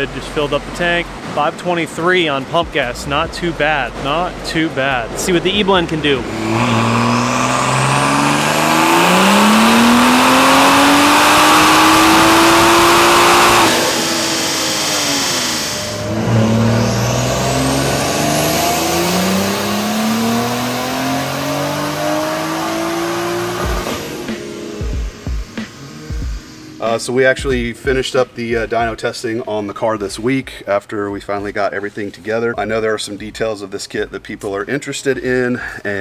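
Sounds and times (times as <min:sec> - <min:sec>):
turbocharged engine revving: 0:02.3 - 0:28.7.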